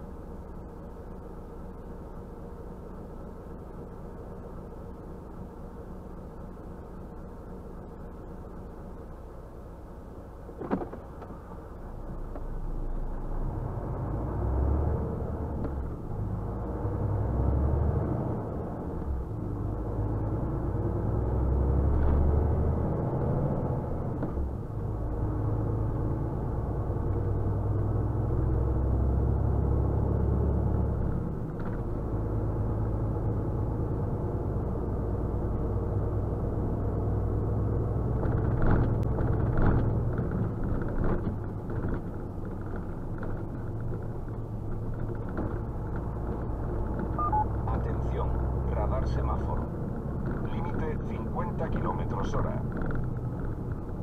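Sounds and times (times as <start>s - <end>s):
road noise: 0.0s - 54.0s
truck diesel engine running: 23.6s - 54.0s.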